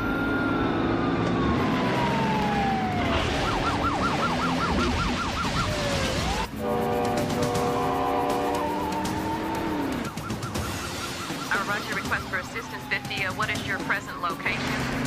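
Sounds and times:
police siren wailing and yelping: 0.0s - 6.6s, 7.9s - 15.0s
engine climbing in pitch: 0.0s - 15.0s.

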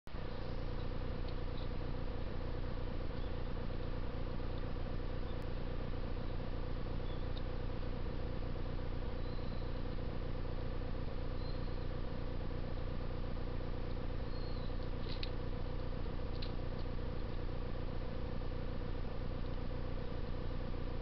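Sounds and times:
low hum and hiss: 0.1s - 21.0s
sparrows chirping: 0.2s - 2.0s, 2.8s - 5.5s, 6.2s - 7.6s, 9.1s - 10.0s, 11.2s - 12.1s, 14.1s - 17.0s
sharp bird calls: 3.1s - 3.6s, 7.0s - 7.4s, 9.2s - 10.0s, 11.3s - 12.0s, 14.2s - 15.3s.

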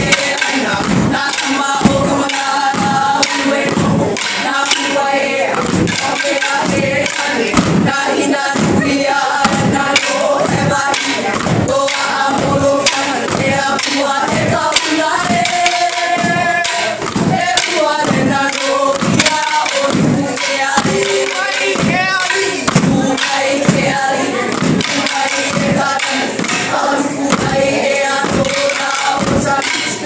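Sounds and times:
group of voices singing: 0.0s - 30.0s
wooden sticks clacking: 0.0s - 30.0s.

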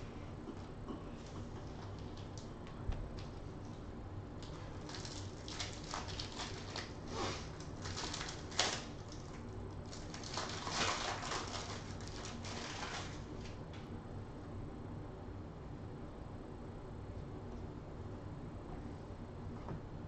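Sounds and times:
foil wrapper crinkling and tearing: 4.4s - 13.6s.

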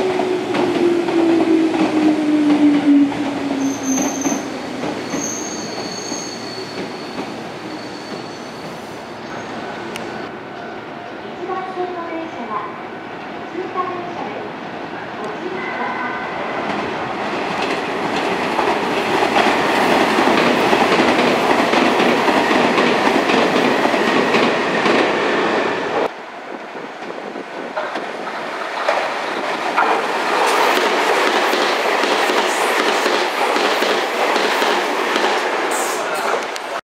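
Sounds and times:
train wheels clacking: 0.0s - 9.5s, 16.6s - 25.2s, 27.8s - 36.7s
train wheels clattering over rails: 16.6s - 26.1s, 27.0s - 36.6s.

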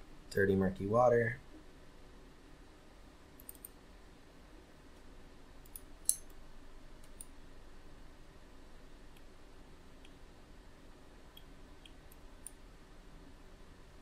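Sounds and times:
low steady hum: 0.0s - 14.0s
computer mouse clicks: 3.4s - 3.8s.

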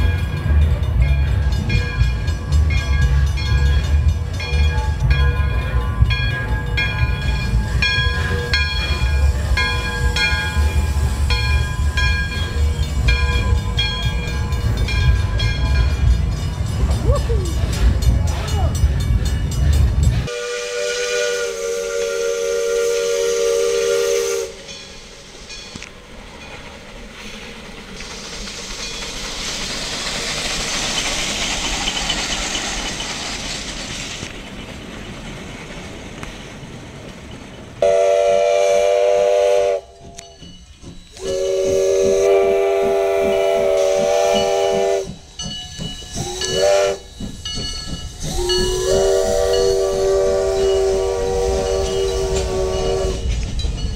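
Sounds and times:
steam hissing: 6.4s - 53.9s
steam locomotive whistle: 20.2s - 24.8s, 37.8s - 45.3s, 46.1s - 47.4s, 48.2s - 53.4s.

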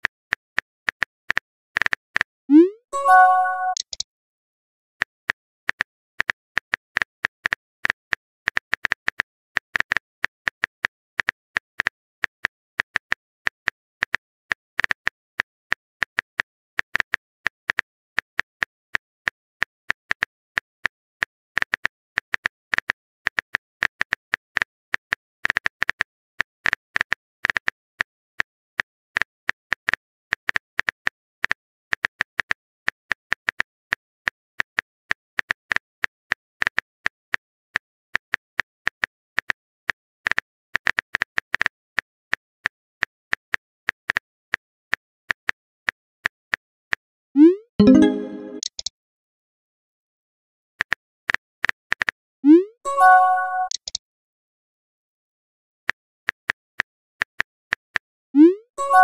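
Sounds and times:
phone keyboard typing clicks: 3.0s - 4.0s, 47.8s - 48.9s, 53.0s - 54.0s.

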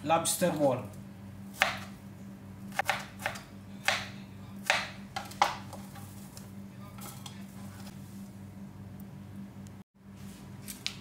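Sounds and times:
knife striking cutting board: 1.6s - 1.9s, 2.7s - 6.1s.

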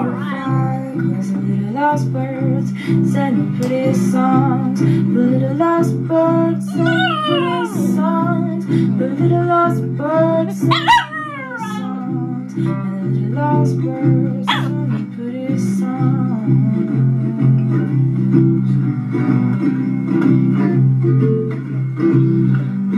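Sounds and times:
song with guitar: 0.0s - 22.9s
dog howling: 6.7s - 8.0s, 10.6s - 12.0s, 14.5s - 14.8s.

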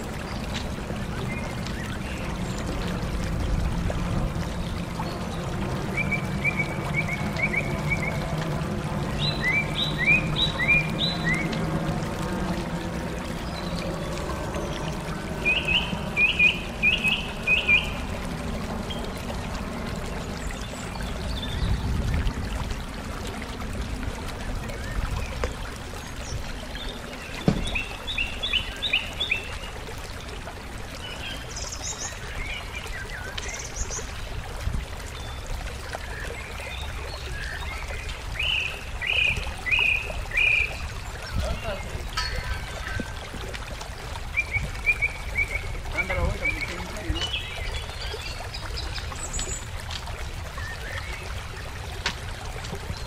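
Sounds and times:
songbird chirping: 13.4s - 18.1s, 25.0s - 29.8s, 36.2s - 43.4s, 44.2s - 52.2s.

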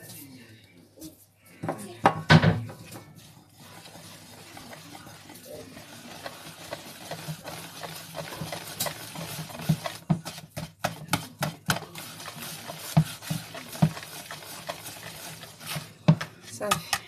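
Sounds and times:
whisk beating batter in bowl: 2.8s - 17.0s.

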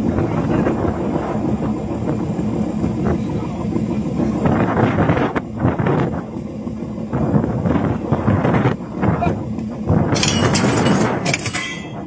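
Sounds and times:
boat engine running: 0.0s - 12.0s
wind on microphone: 0.0s - 12.0s
short rattles: 10.2s - 12.0s.

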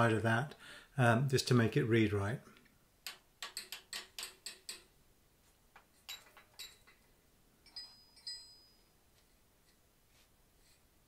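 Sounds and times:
hammer tapping on chisel: 3.0s - 4.9s
high metallic ring: 7.6s - 9.0s.

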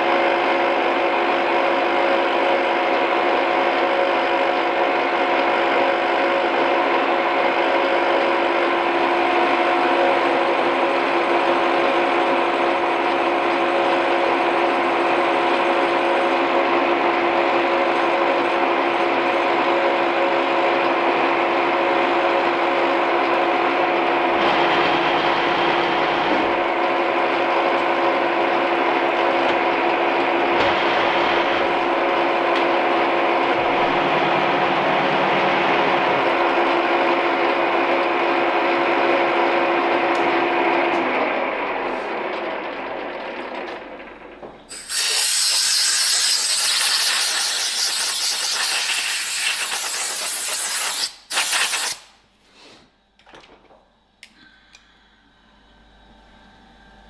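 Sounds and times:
milling machine gear whine: 21.9s - 46.4s
compressed air blast: 44.7s - 52.8s.

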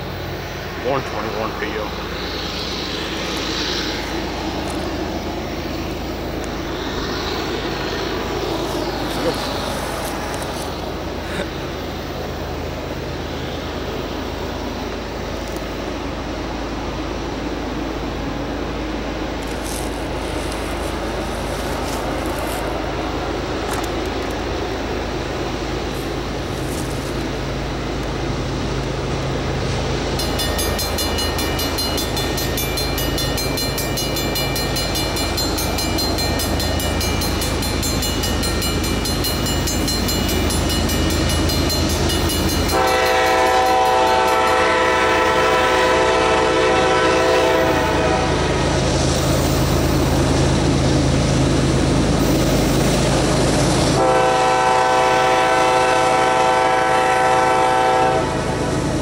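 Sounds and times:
locomotive engine drone: 0.0s - 59.0s
locomotive air horn blast: 42.7s - 48.6s, 54.0s - 58.6s.

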